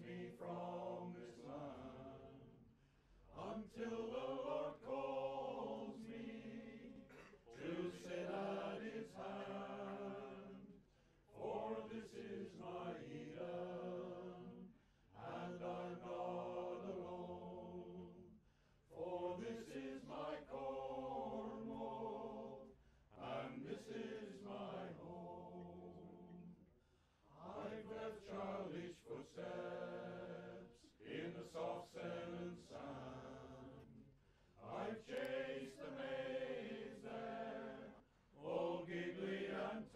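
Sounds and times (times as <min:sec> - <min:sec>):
voices chanting together: 0:00.0 - 0:39.9.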